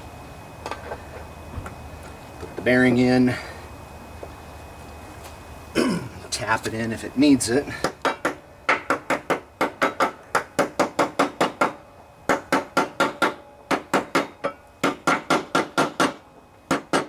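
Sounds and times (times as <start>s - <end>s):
hammer tapping metal: 7.8s - 17.0s.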